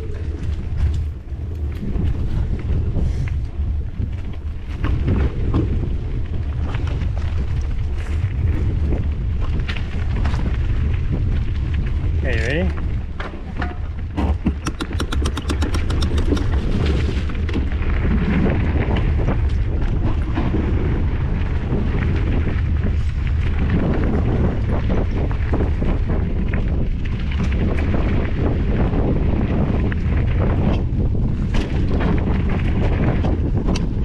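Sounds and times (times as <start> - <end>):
tyres rumbling and knocking over bumps: 0.0 - 34.0
wind buffeting on microphone: 0.0 - 34.0
freewheel hub clicking: 14.4 - 16.6.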